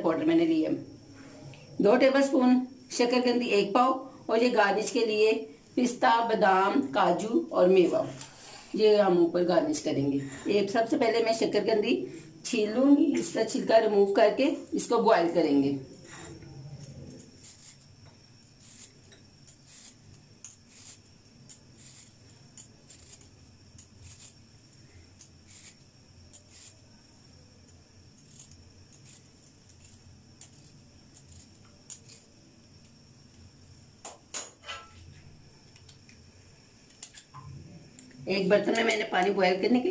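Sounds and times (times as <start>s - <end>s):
vegetable peeler scraping: 17.2s - 17.9s, 18.5s - 24.4s, 25.2s - 26.8s, 28.2s - 32.3s.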